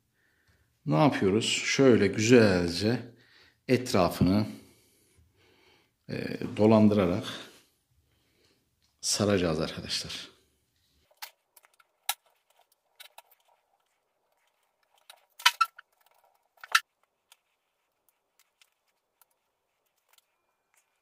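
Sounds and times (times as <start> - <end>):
hands handling plastic tripod: 11.0 - 21.0.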